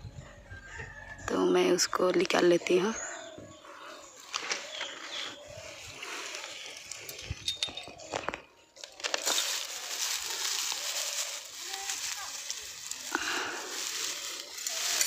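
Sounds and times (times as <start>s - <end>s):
straw rustling and crackling: 4.2s - 15.0s.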